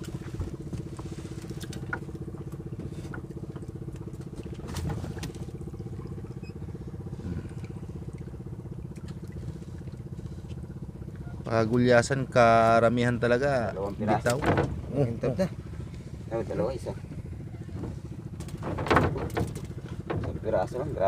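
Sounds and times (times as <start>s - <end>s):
boat engine chugging at low revs: 0.0s - 21.0s.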